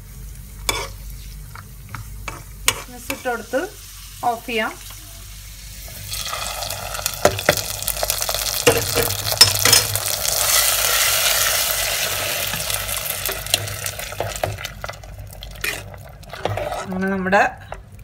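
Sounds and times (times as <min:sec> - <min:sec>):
hot oil sizzling: 0:00.0 - 0:17.0.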